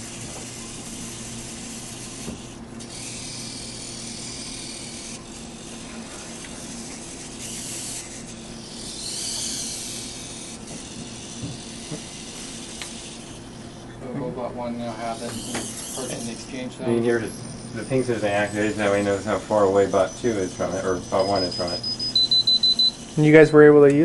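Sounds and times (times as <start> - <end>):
servo motors whirring: 0.0 - 24.0.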